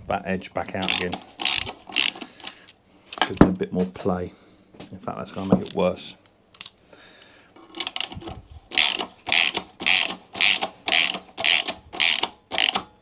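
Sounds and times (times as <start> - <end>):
socket ratchet wrench clicking: 0.8 - 2.3, 8.7 - 12.9.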